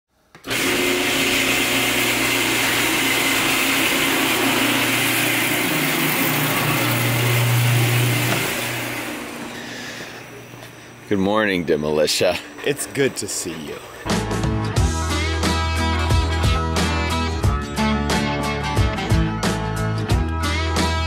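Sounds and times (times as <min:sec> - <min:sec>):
garage door motor hum and rattle: 0:00.4 - 0:14.1.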